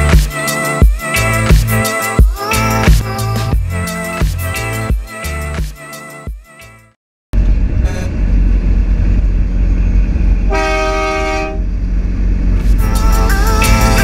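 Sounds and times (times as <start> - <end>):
music: 0.0 - 7.0, 12.7 - 14.0
truck engine droning: 7.4 - 14.0
air horn blast: 10.5 - 11.7.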